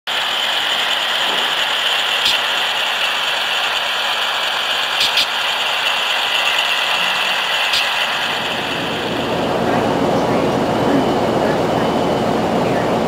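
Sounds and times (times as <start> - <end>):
model train motor whirring: 0.1 - 9.9
sharp clicks: 2.2 - 2.7, 5.0 - 5.4.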